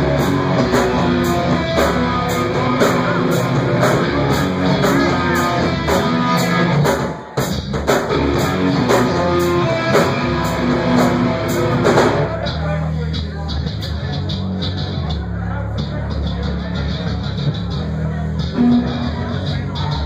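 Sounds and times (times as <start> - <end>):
live rock band playing: 0.0 - 12.6, 18.4 - 20.0.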